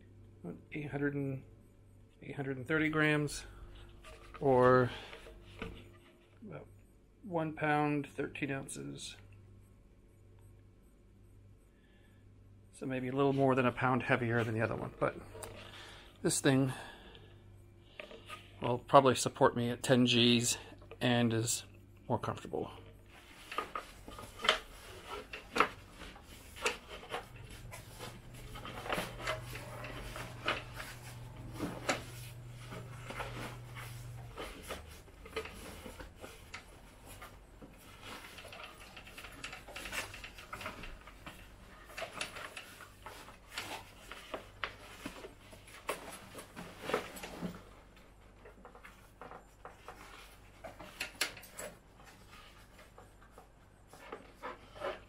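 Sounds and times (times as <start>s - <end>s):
low steady hum: 0.0s - 55.0s
harness clicks and knocks: 23.2s - 55.0s.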